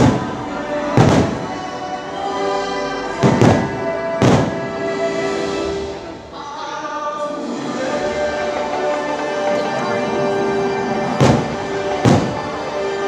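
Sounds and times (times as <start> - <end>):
fireworks booming: 0.0 - 1.7, 3.2 - 5.0, 11.1 - 13.0
music with singing: 0.0 - 13.0.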